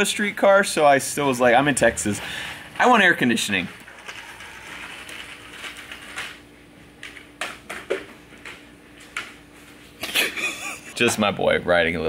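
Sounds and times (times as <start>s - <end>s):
faint steady hum: 0.0s - 12.0s
plastic scooter rolling on concrete: 3.5s - 6.4s.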